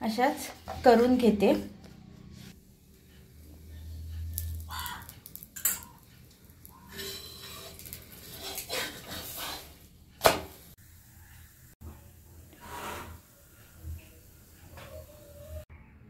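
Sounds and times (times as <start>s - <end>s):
clink of metal on iron: 5.6s - 6.0s
metal spatula scraping iron griddle: 5.6s - 9.9s, 12.6s - 13.3s.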